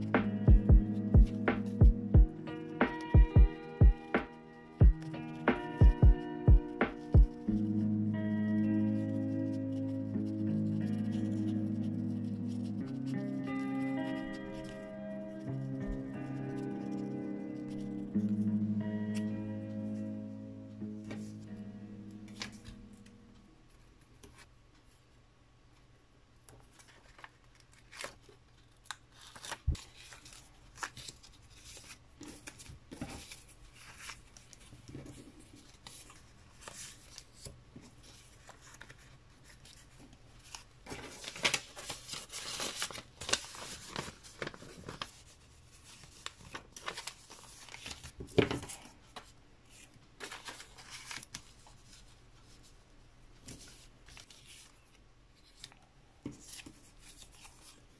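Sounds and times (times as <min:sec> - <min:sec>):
paper rustling: 0:08.6 - 0:20.1, 0:21.0 - 0:25.0, 0:26.5 - 0:57.9
paper crinkling: 0:22.2 - 0:24.5, 0:26.5 - 0:57.9.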